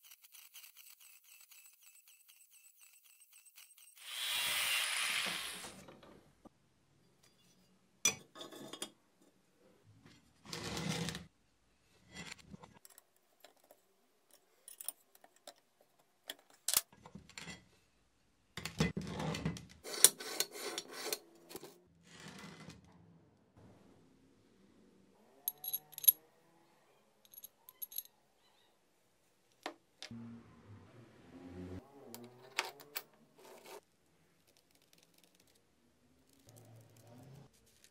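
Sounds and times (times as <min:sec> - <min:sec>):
metal parts clinking and knocking: 0:12.7 - 0:17.5, 0:25.5 - 0:26.2, 0:27.3 - 0:28.1.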